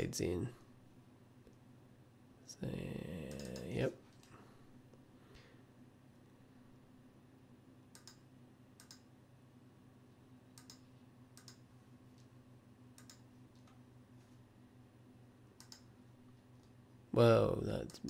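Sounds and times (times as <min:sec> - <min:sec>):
low steady hum: 0:00.0 - 0:18.0
computer mouse clicks: 0:03.3 - 0:04.4, 0:07.9 - 0:08.2, 0:08.8 - 0:09.1, 0:10.5 - 0:12.3, 0:13.0 - 0:13.8, 0:15.6 - 0:15.9.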